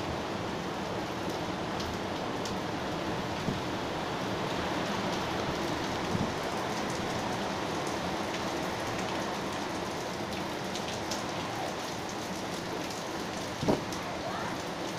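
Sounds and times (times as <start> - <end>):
heavy rain pouring: 0.0 - 14.9
gale-force wind: 2.7 - 7.8, 13.5 - 14.0.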